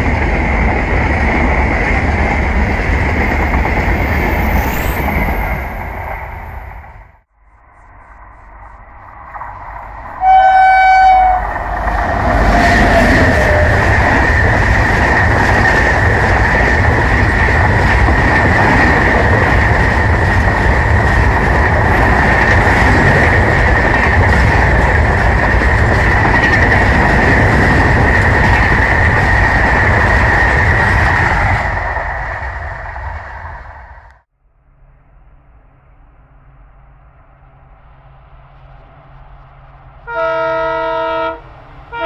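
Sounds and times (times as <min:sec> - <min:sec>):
train wheels rushing on rail: 0:00.0 - 0:07.1, 0:08.1 - 0:34.3
locomotive horn blast: 0:10.2 - 0:11.5, 0:40.0 - 0:42.0.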